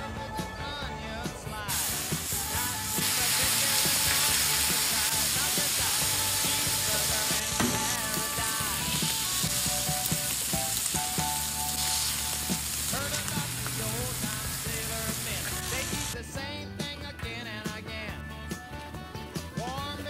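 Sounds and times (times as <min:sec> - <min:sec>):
background music: 0:00.0 - 0:20.0
meat sizzling on a griddle: 0:01.7 - 0:16.2.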